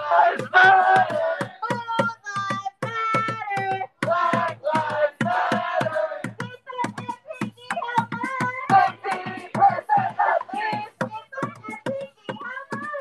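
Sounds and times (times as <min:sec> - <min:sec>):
crowd chanting: 0:00.0 - 0:01.6, 0:04.0 - 0:06.4, 0:08.7 - 0:10.9
hand claps: 0:00.2 - 0:13.0.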